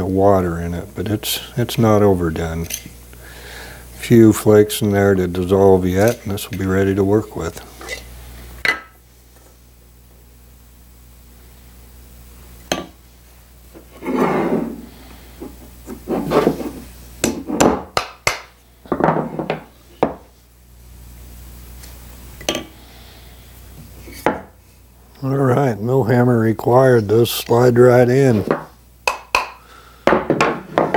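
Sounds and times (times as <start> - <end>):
wood rubbing scrapes: 13.8 - 17.7.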